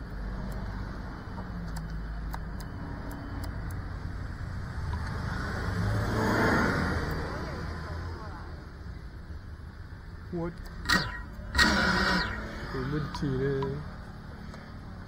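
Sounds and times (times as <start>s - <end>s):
drone motors humming: 10.8s - 14.0s.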